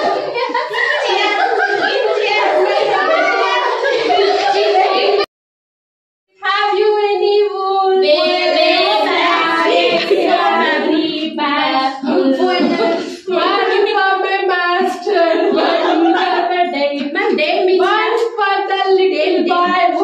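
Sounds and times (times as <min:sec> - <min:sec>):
woman singing unaccompanied: 0:06.4 - 0:20.0.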